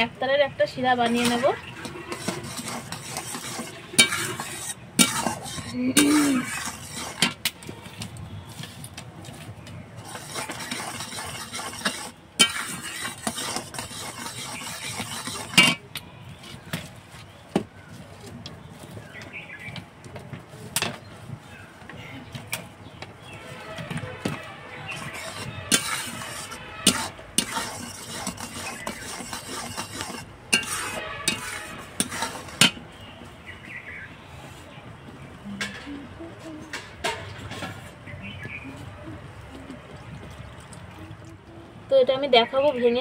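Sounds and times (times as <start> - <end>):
metal spatula scraping a pan: 1.0 - 8.0, 10.0 - 16.0, 23.2 - 33.1, 36.7 - 38.0
syrup bubbling and sizzling: 1.0 - 8.0, 10.0 - 15.9, 23.2 - 33.1, 39.6 - 41.5.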